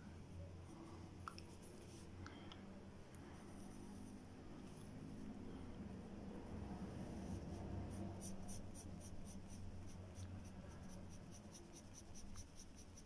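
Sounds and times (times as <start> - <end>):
pencil scratching on paper: 7.1 - 13.0.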